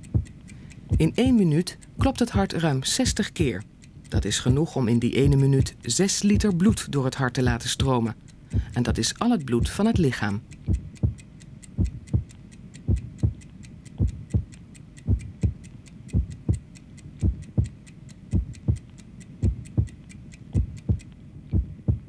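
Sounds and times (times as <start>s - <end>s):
heartbeat thumps: 0.0s - 1.4s, 4.2s - 6.8s, 8.5s - 9.0s, 9.6s - 10.0s, 10.6s - 22.0s
fast even ticking: 0.0s - 22.0s.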